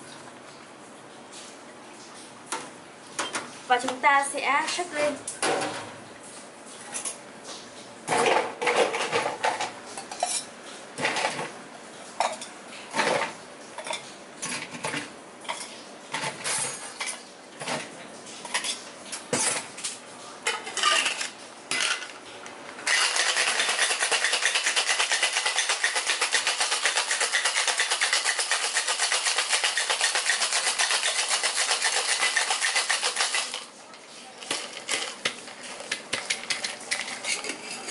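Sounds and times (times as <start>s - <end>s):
ice cubes clinking: 22.9s - 33.7s
ice rattling in cocktail shaker: 22.9s - 33.7s, 34.4s - 37.9s.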